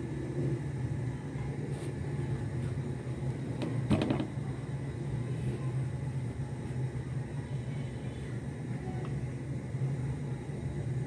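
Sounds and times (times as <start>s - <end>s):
low appliance hum: 0.0s - 11.0s.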